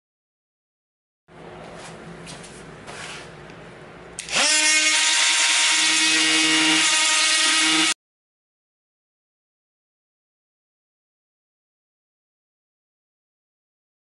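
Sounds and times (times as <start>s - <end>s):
die grinder high-pitched whine: 4.2s - 8.0s.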